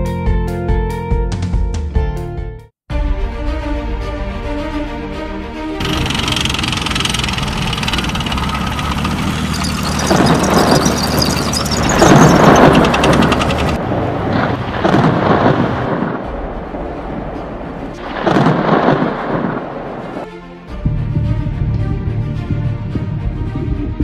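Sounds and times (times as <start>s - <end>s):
clanking tank tracks: 5.8s - 13.8s
tank engine rumbling: 5.8s - 15.9s
thunder crashes: 12.0s - 20.3s.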